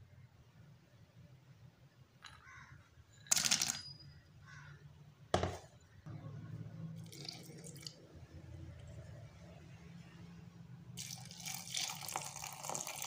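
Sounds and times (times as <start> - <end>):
milk pouring into jar: 7.0 - 8.0, 11.0 - 13.0.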